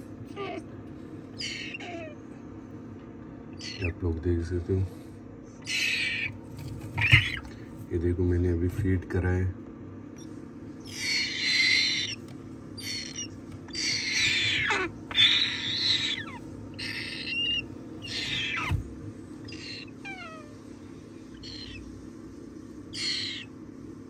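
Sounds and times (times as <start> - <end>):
cockatoo chick raspy calls: 0.2 - 2.4, 3.5 - 4.0, 5.6 - 7.6, 10.2 - 20.7, 21.3 - 21.9, 22.9 - 23.6.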